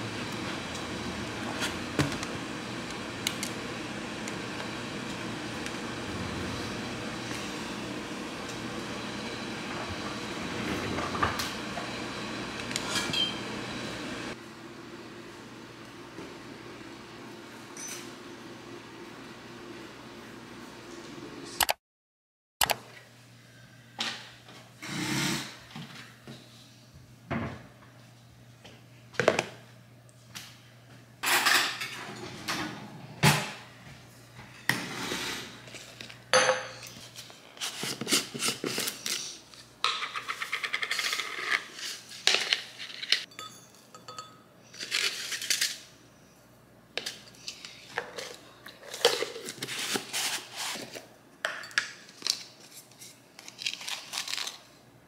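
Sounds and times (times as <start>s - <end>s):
dishes and cutlery clinking: 42.4s - 44.5s.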